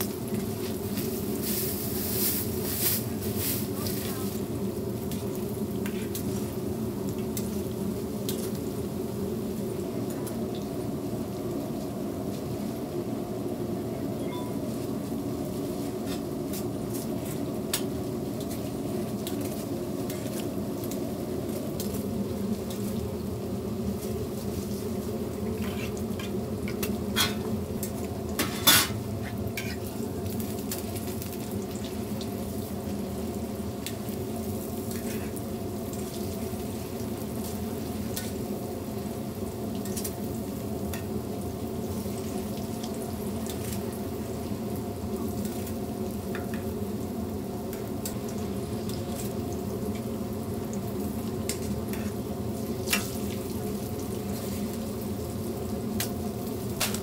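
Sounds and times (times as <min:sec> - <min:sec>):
pancakes sizzling in oil: 0:00.0 - 0:57.0.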